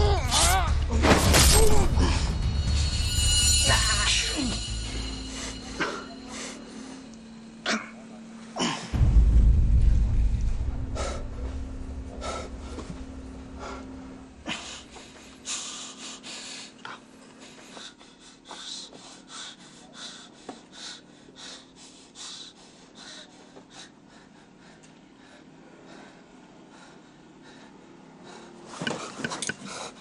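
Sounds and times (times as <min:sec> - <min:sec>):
low rumble: 0:00.0 - 0:07.6, 0:08.9 - 0:15.6
person breathing heavily: 0:08.6 - 0:28.7.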